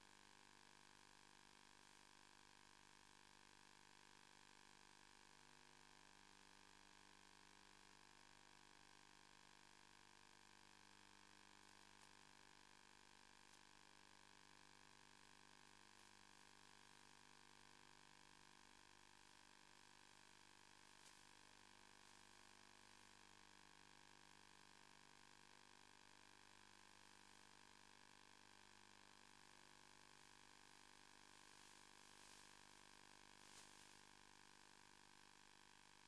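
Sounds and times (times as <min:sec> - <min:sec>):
faint electrical hum and hiss: 0:20.8 - 0:23.2, 0:30.1 - 0:35.2.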